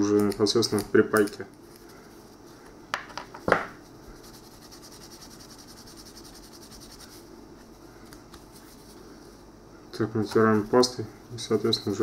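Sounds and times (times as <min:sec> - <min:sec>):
faint rubbing with a pad: 0:03.8 - 0:09.5.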